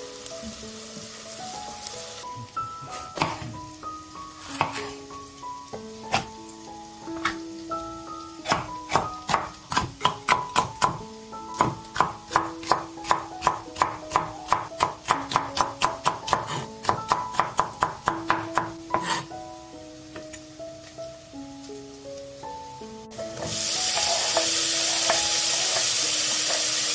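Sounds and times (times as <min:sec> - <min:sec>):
background music: 0:00.0 - 0:26.9
knife chopping on wooden board: 0:02.9 - 0:03.6, 0:04.5 - 0:04.9, 0:08.5 - 0:11.0, 0:11.6 - 0:19.2.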